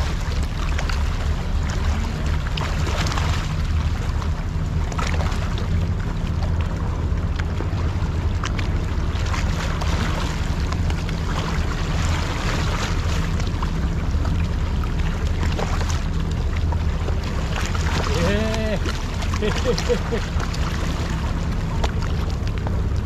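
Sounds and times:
waves lapping against rocks: 0.0 - 23.0.

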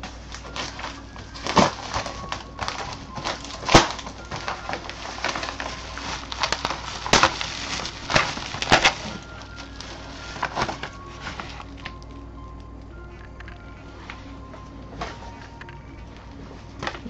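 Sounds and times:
paper mailer tearing: 0.0 - 12.0
paper and plastic crinkling: 0.0 - 17.0.

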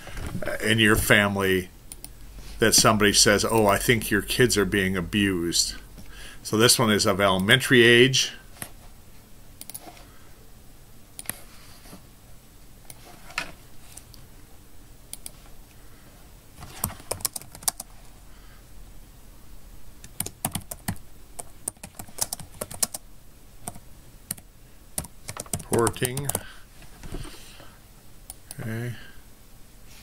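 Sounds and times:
typing on computer keyboard: 16.7 - 17.9, 20.0 - 23.0, 25.0 - 26.5.

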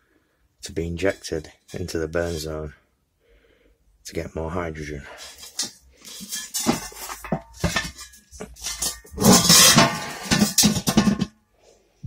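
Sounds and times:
metal parts clanking and rattling: 5.2 - 11.4.

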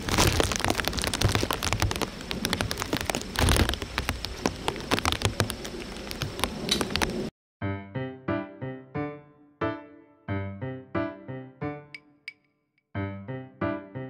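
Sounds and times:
rain pattering: 0.0 - 7.3.

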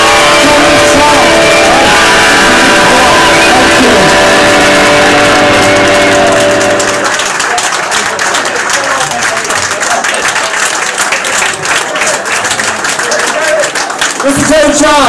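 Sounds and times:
rock band chord ringing: 0.0 - 7.2
audience applauding: 0.0 - 15.0.

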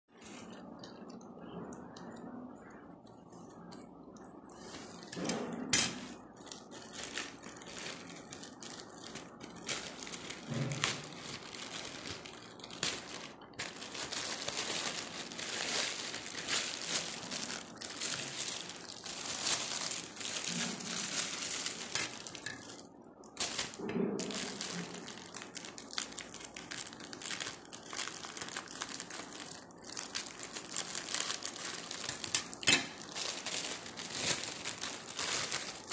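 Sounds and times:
plastic wrapping crinkling: 0.1 - 35.9
scissors cutting plastic: 28.7 - 35.9.

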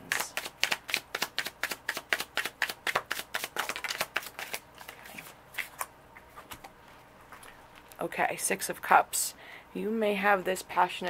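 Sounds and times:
cards being shuffled: 0.0 - 7.9.

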